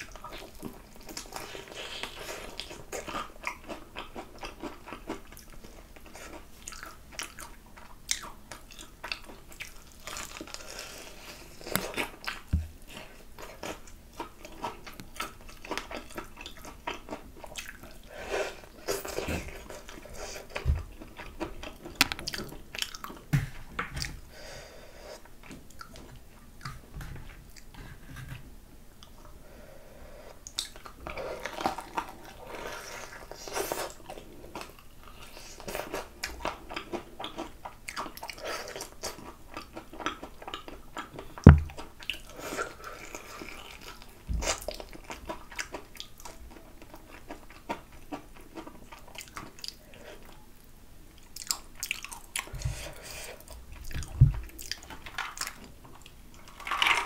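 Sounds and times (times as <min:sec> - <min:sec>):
crunching fried chicken: 0:00.2 - 0:18.0, 0:53.9 - 0:57.0.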